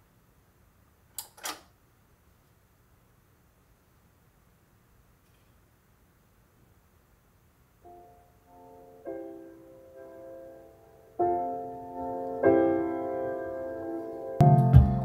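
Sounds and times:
soft piano chords: 7.8s - 15.0s.

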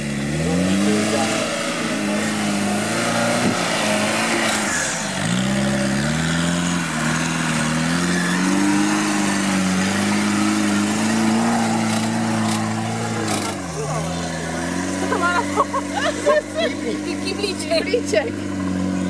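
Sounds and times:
car engine revving under load: 0.0s - 19.0s.

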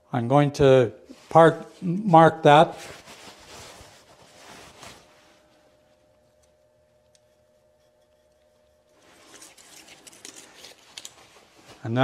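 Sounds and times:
faint handling noise: 2.5s - 12.0s.

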